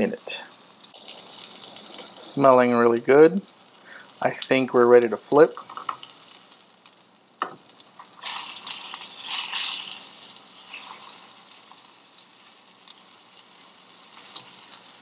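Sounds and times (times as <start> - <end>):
fish fillets sizzling in oil: 0.3 - 2.3, 5.6 - 15.0
small pops of hot fat: 6.8 - 8.2.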